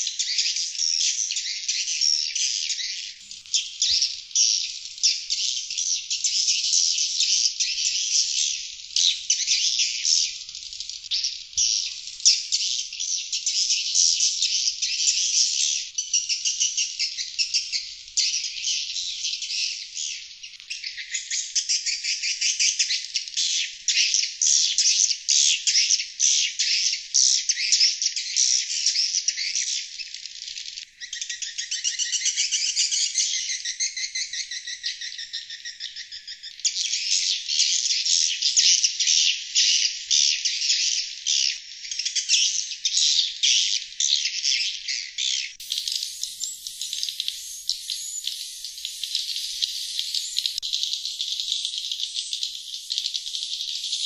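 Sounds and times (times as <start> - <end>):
rapid high bird twittering: 45.5 - 54.0.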